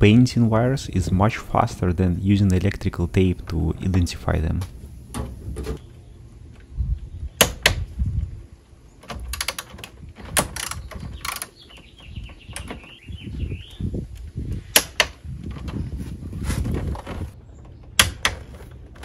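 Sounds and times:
low handling rumble: 0.0 - 19.0
sharp metallic clicks and knocks: 7.4 - 7.8, 9.0 - 13.0, 14.2 - 15.8, 17.0 - 19.0.

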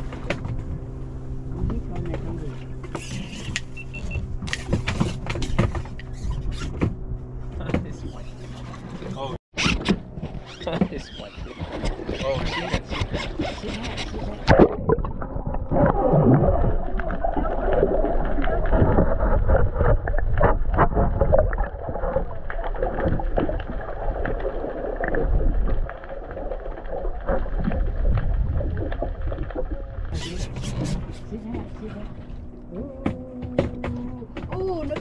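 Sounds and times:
low rumble of wind and water: 0.0 - 35.0
knocks on boat: 4.2 - 6.0, 6.6 - 8.1, 32.8 - 35.0
indistinct voices: 30.1 - 35.0.

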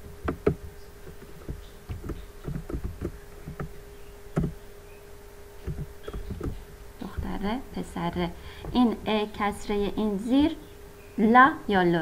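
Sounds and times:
computer keyboard and mouse clicks: 0.0 - 4.6, 5.6 - 7.3
steady low hum: 0.0 - 12.0.

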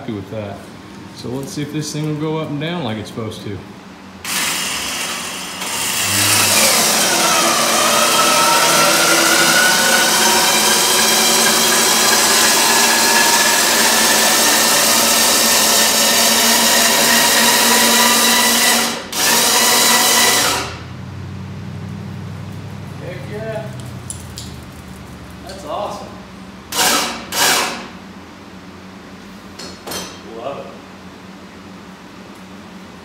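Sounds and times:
motorized lift drive running: 4.2 - 20.8.

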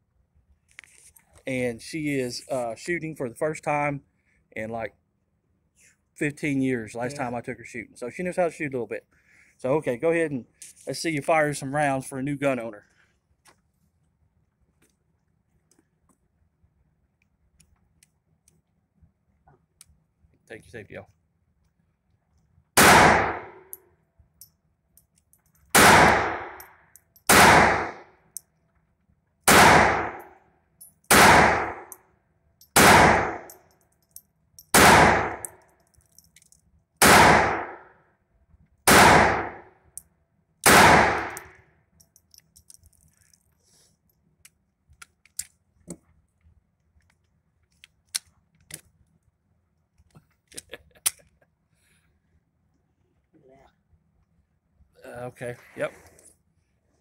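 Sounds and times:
gun handling clicks: 33.5 - 36.7, 41.2 - 43.5, 44.4 - 45.6, 47.0 - 48.9, 51.0 - 51.3
pistol shots ringing indoors: 40.6 - 41.5.

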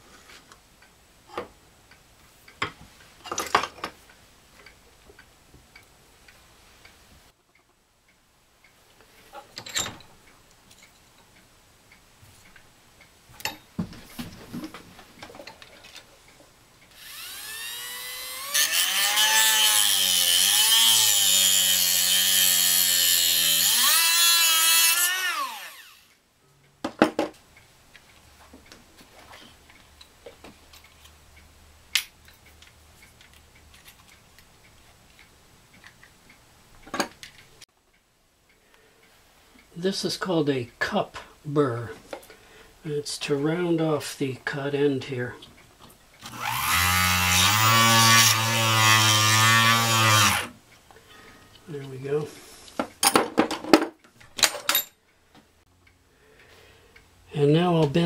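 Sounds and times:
rotary tool cutting metal wire: 16.9 - 26.1, 46.2 - 50.5.

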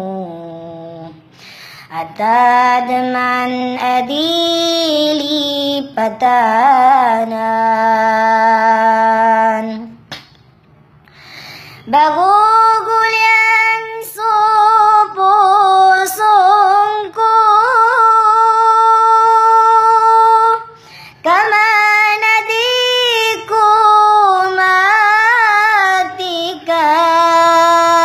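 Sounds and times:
person singing slow song: 0.0 - 10.1.

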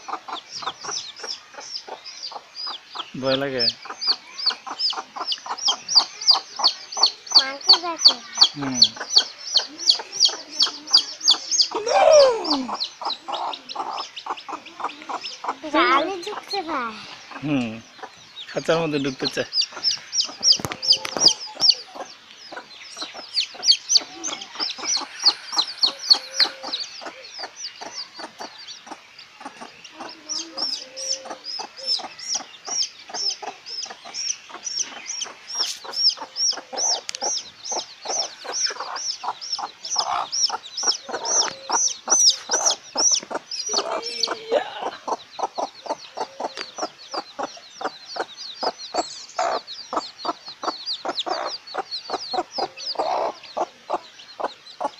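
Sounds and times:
chicks peeping: 0.0 - 54.9
hen clucking: 0.0 - 54.9.

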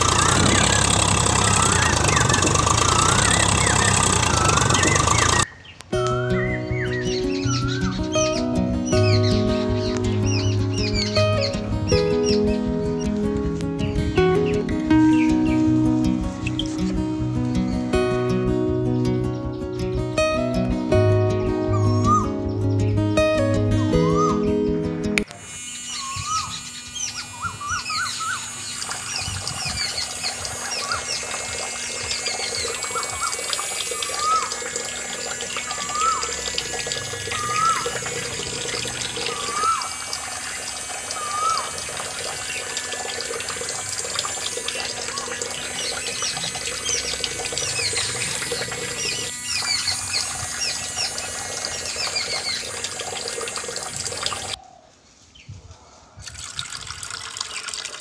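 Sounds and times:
steady low hum: 0.0 - 5.5, 24.9 - 54.6
water splashing into pool: 0.0 - 6.1, 28.2 - 54.6, 56.2 - 58.0
bird calling: 0.0 - 13.2, 21.4 - 22.8, 23.8 - 24.7, 25.7 - 56.2
birds twittering: 0.0 - 17.9, 21.3 - 24.9, 25.8 - 56.2.

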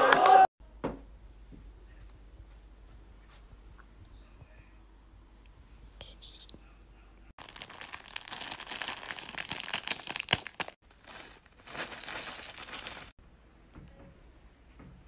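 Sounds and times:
crinkling crackling noise: 7.4 - 13.1.

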